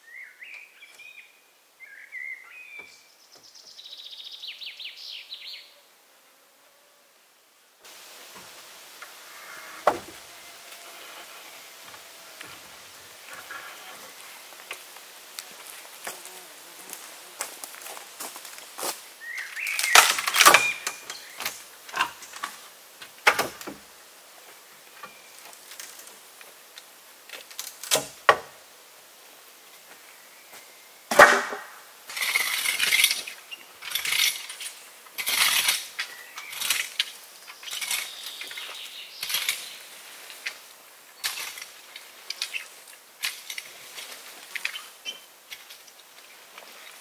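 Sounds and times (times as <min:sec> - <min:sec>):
scraping and rustling: 0:07.9 - 0:19.0.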